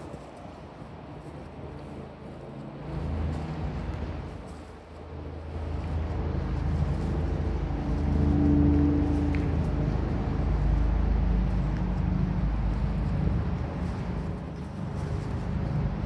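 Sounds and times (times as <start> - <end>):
vehicle engine rumble: 0.0 - 16.0.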